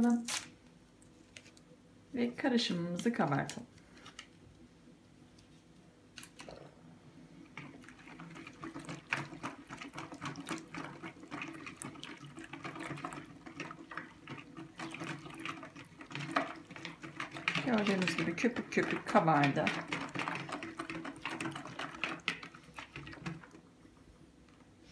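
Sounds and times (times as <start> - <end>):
whisk beating batter in bowl: 7.5 - 23.7.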